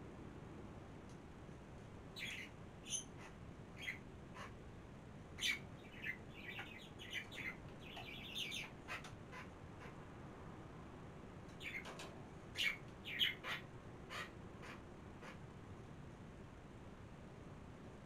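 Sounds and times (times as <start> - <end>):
small birds chirping: 2.1 - 4.6, 5.4 - 10.0, 11.5 - 15.4.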